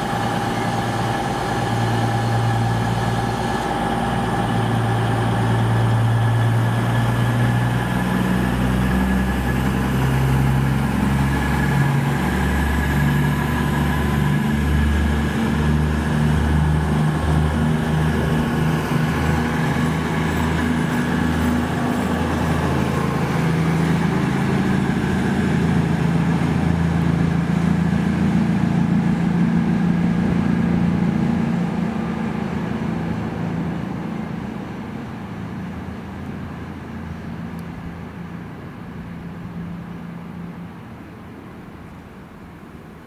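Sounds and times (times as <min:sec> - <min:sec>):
train engine humming: 0:00.0 - 0:43.0.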